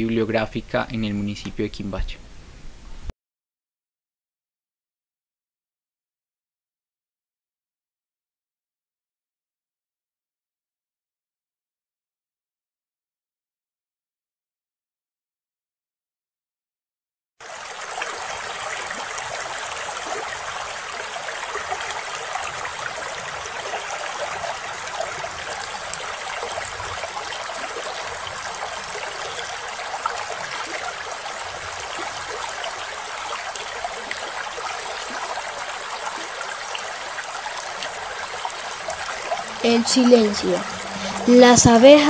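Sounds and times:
stream rushing over rocks: 17.4 - 42.0.

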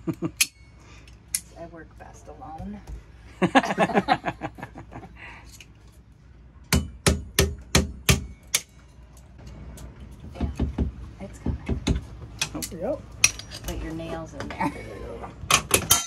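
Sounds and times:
hammer tapping a nail: 6.7 - 8.6.

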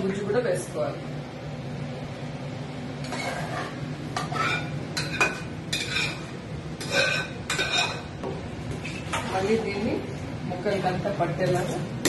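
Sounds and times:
spatula scraping a pan: 3.0 - 8.1, 8.7 - 9.6.

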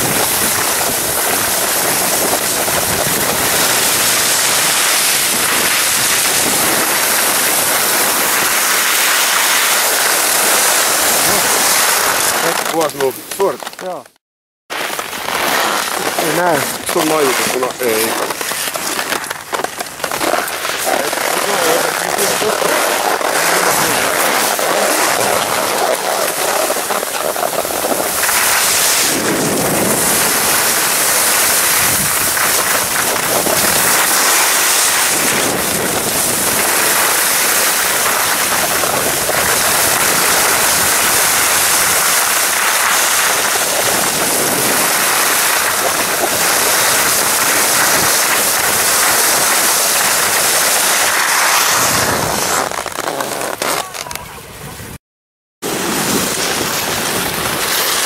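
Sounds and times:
wind rushing over microphone: 0.0 - 13.3, 20.9 - 52.9
skis scraping on snow: 0.0 - 14.1, 14.7 - 54.3, 55.6 - 58.0.

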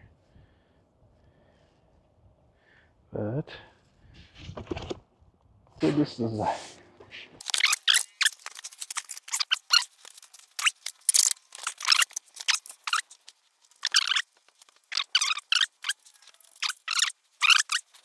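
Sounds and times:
plastic packaging crinkling: 7.4 - 18.0.

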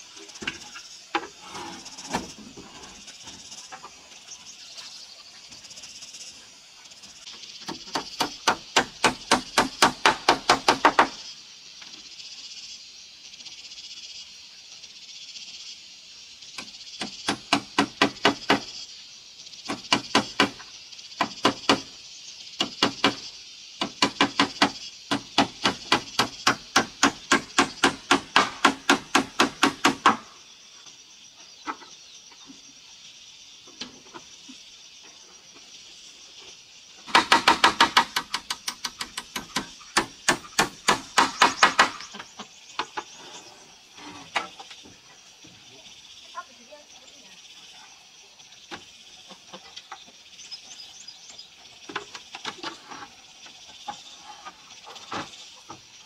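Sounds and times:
hammer nailing into metal roofing: 37.1 - 42.1.

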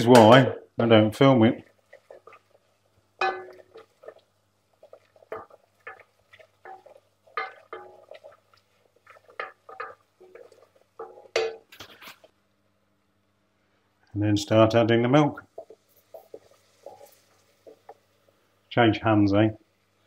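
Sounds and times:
wooden spoon scraping a saucepan: 1.4 - 4.2, 4.8 - 12.3, 15.5 - 18.0.

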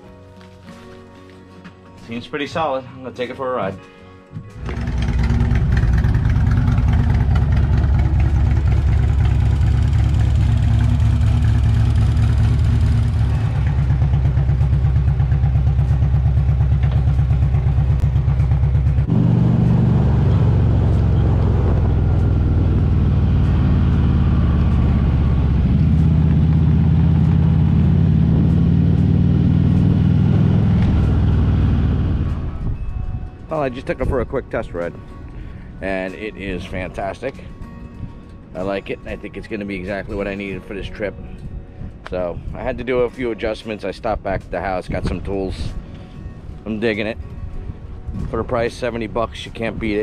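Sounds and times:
motorcycle riding along road: 4.4 - 50.0
motorcycle engine idling: 4.6 - 28.1.

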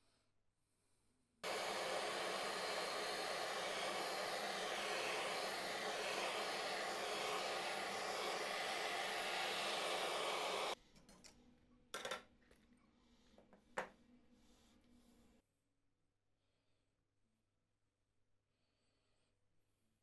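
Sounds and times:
blowtorch hissing: 1.4 - 10.8.

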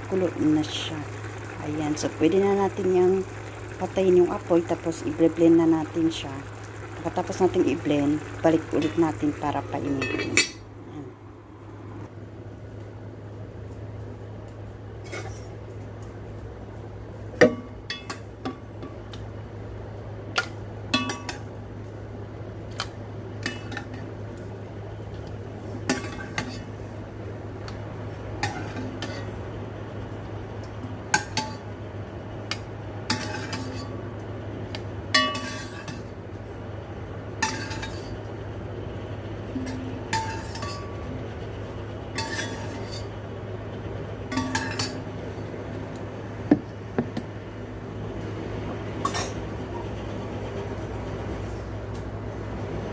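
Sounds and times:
steady low hum: 0.0 - 52.9
soup pouring into pot: 0.1 - 9.5.

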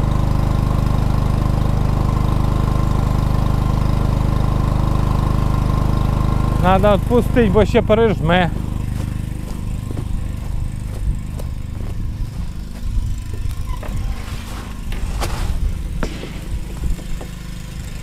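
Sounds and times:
generator engine running: 0.0 - 18.0.

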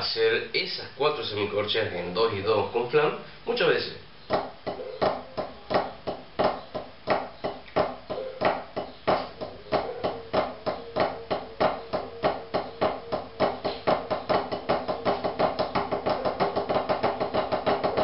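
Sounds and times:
drumsticks tapping practice pad: 4.3 - 18.0.

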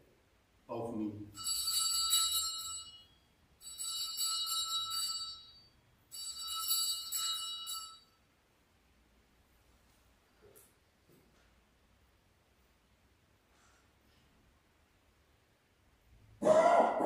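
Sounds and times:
small altar bells jingling: 1.2 - 8.2.

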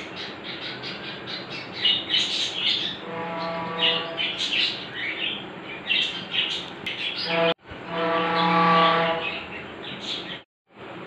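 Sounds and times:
birds chirping: 0.0 - 7.5, 8.3 - 10.4.

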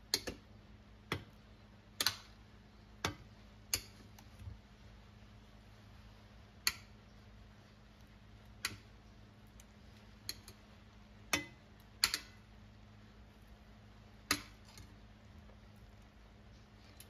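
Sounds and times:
low steady hum: 0.0 - 17.0
metal tongs clicking: 10.2 - 10.6, 11.3 - 12.4.

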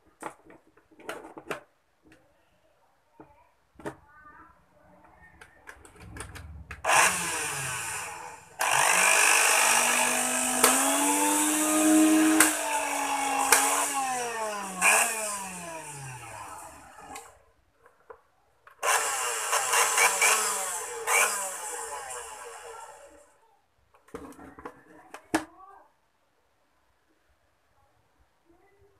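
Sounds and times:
blender motor running: 6.9 - 17.3, 18.8 - 23.2.

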